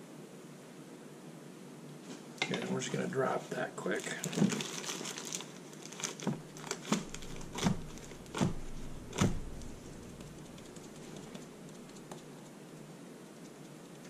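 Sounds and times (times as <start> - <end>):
plastic wrap crinkling: 3.8 - 12.2.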